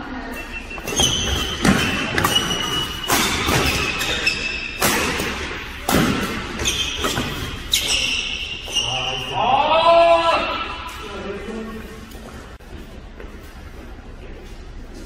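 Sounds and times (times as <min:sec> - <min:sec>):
sneakers squeaking on court: 0:00.2 - 0:09.3
badminton rackets hitting shuttlecock: 0:00.8 - 0:08.7.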